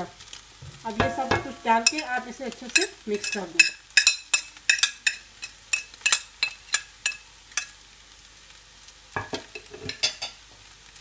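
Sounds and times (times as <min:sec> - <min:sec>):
plastic scoop tapping metal pot: 0:01.0 - 0:02.1.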